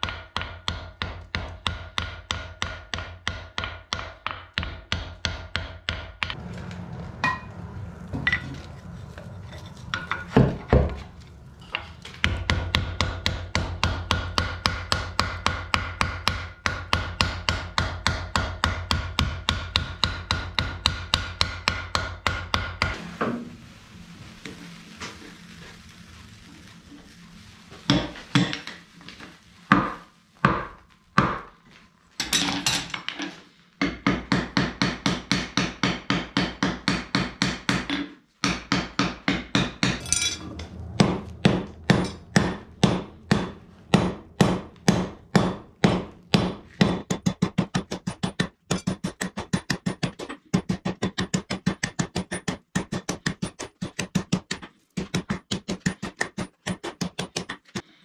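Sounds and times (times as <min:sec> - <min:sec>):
hammer striking iron on anvil: 0:00.0 - 0:06.4, 0:07.2 - 0:07.5, 0:11.6 - 0:22.9, 0:33.8 - 0:40.4, 0:41.0 - 0:54.0.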